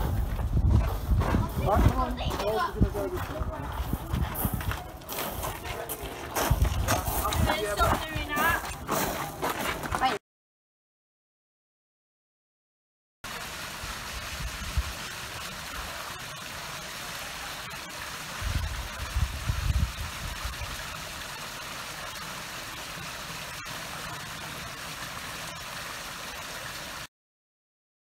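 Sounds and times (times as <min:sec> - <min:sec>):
waterfall splashing into pool: 0:13.2 - 0:27.1.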